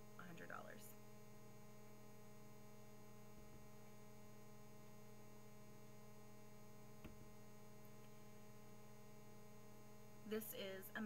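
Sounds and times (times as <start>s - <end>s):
low electrical mains hum: 0.0s - 11.0s.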